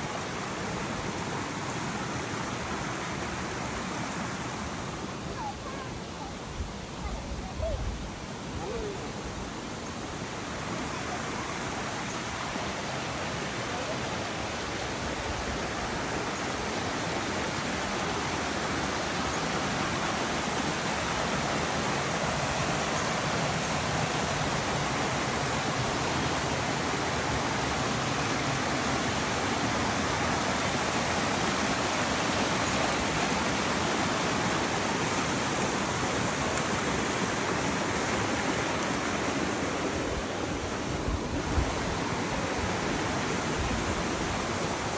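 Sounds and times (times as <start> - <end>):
waterfall and creek rushing: 0.0 - 44.9.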